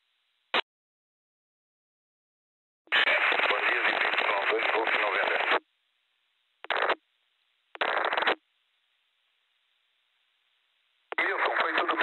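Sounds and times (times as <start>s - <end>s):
noisy radio bursts: 2.9s - 5.6s, 6.7s - 7.0s, 7.8s - 8.4s, 11.1s - 12.0s.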